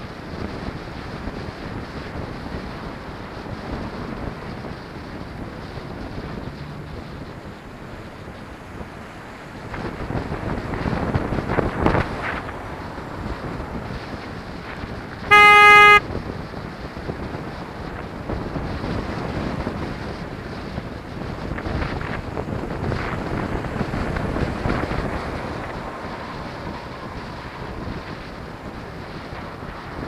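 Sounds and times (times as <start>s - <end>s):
wind rush on microphone: 0.0s - 15.3s, 16.0s - 30.0s
traffic noise: 1.6s - 30.0s
horn: 15.3s - 16.0s.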